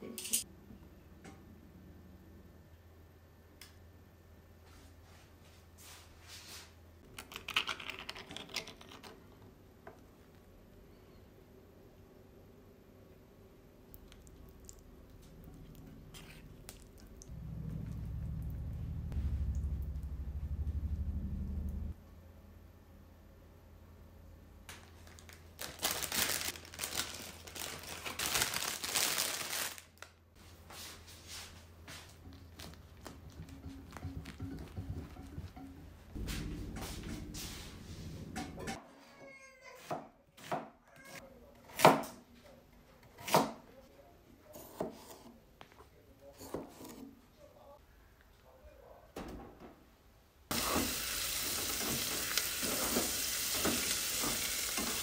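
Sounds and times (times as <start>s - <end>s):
lettuce leaves crackling: 25.0s - 30.1s.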